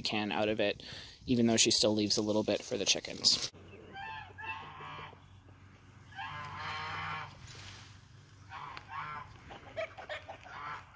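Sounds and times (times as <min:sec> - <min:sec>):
farmyard birds honking: 0:03.6 - 0:10.9.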